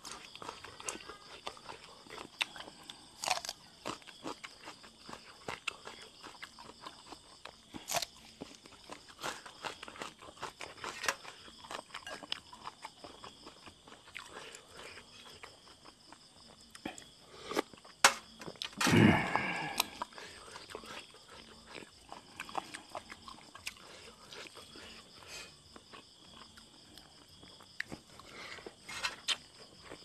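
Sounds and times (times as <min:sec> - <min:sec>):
wet chewing and lip smacking: 0:00.0 - 0:18.8, 0:19.5 - 0:30.0.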